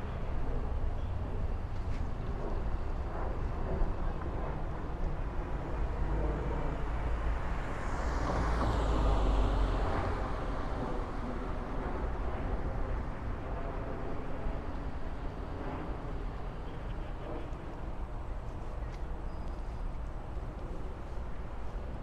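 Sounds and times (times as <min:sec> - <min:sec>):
low traffic rumble: 0:00.0 - 0:22.0
vehicle passing by: 0:07.7 - 0:10.6.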